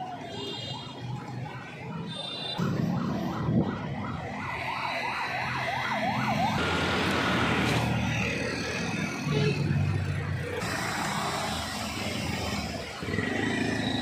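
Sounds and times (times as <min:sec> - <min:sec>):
electronic siren wailing: 0:00.0 - 0:14.0.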